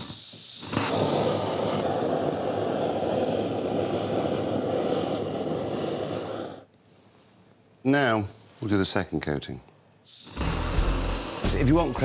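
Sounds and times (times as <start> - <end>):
blowtorch flame rushing: 0.0 - 7.0, 10.1 - 12.0.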